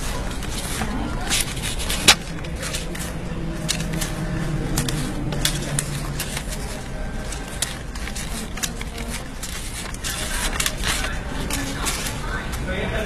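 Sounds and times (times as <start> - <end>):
banknotes flicked by hand: 0.0 - 12.6.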